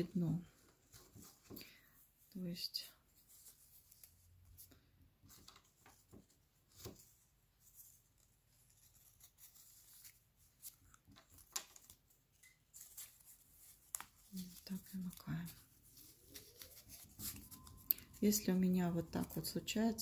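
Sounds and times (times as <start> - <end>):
cardboard rings rustling and clicking: 5.3 - 18.4.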